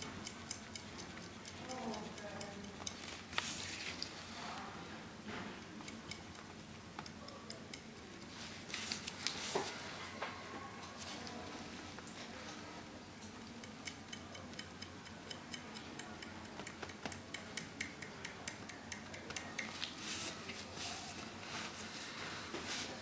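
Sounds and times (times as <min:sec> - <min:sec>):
rhythmic needle clicking: 0:00.0 - 0:04.1, 0:05.6 - 0:09.4, 0:13.1 - 0:21.3.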